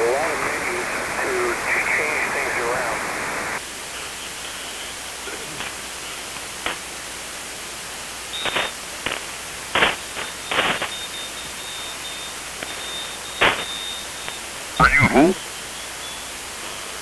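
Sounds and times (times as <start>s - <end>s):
bursts of radio noise: 0.0s - 3.6s, 8.4s - 15.6s
radio band hiss: 0.0s - 17.0s
thin high whistle: 10.3s - 14.4s.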